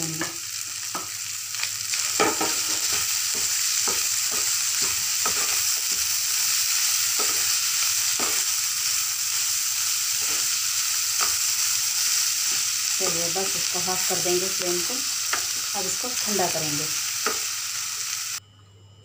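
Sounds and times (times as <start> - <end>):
meat sizzling in frying pan: 0.0 - 18.4
spatula scraping pan: 2.1 - 8.5.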